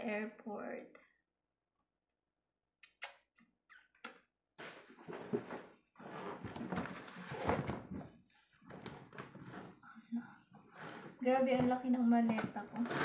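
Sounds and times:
suitcase contents rustling and scraping: 5.0s - 9.8s.

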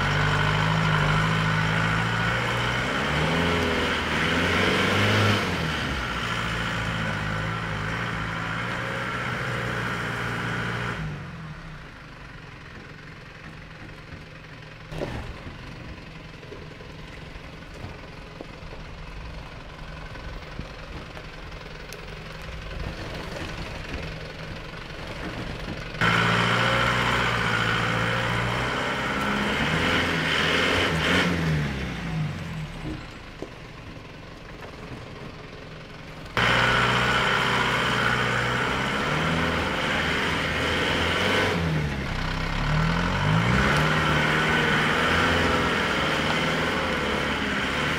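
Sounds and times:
truck engine revving under load: 0.0s - 12.0s, 24.8s - 33.2s, 36.2s - 47.9s.

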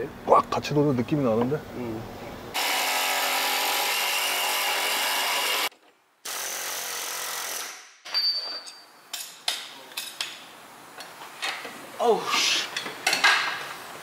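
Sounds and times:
power tool running: 2.5s - 5.7s, 6.3s - 7.7s.

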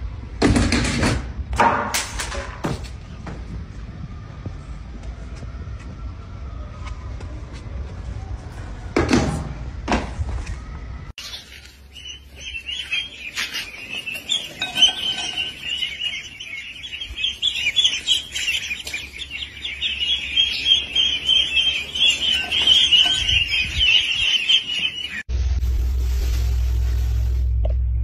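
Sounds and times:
ducklings peeping: 11.2s - 25.2s.

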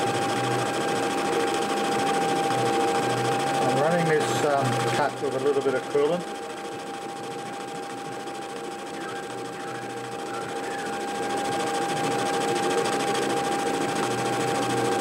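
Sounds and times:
metal lathe cutting with whine: 0.0s - 15.0s.

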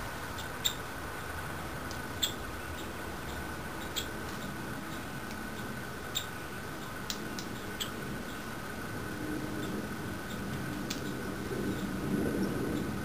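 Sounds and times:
fledgling woodpeckers squeaking: 0.3s - 0.9s, 2.0s - 8.6s.

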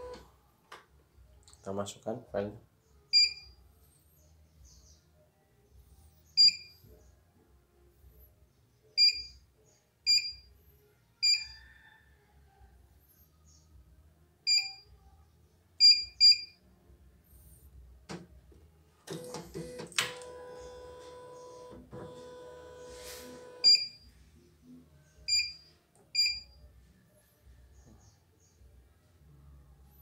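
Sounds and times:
short high key-press beeps: 23.6s - 24.0s.

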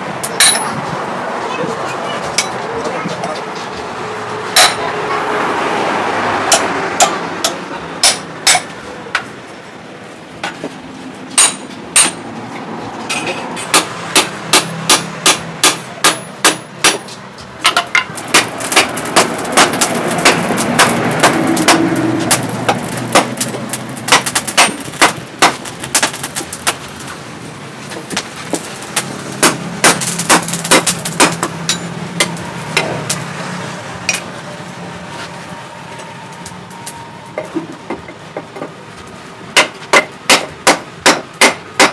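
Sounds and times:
hammer striking hot steel on anvil: 0.2s - 0.8s, 4.5s - 4.8s, 6.5s - 9.3s, 11.4s - 12.2s, 13.1s - 26.8s, 28.0s - 33.2s, 39.6s - 41.9s.

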